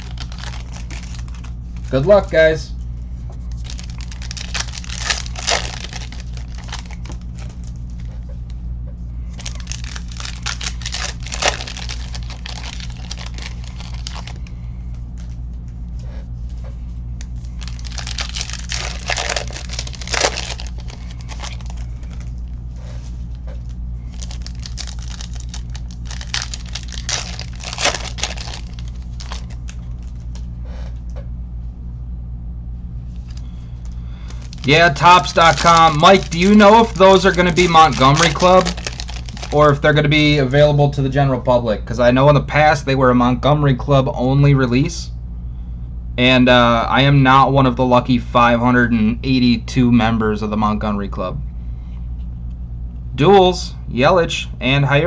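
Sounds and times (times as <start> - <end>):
card wrappers tearing and crinkling: 0.0 - 2.3, 3.5 - 8.1, 9.3 - 14.5, 17.3 - 22.5, 24.0 - 30.4, 34.1 - 39.8
low hum: 0.0 - 55.0.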